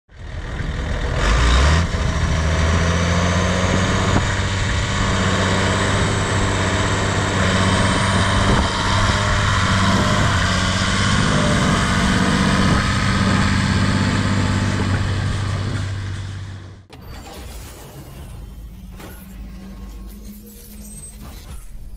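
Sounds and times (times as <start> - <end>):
tractor diesel engine under load: 0.1 - 17.5.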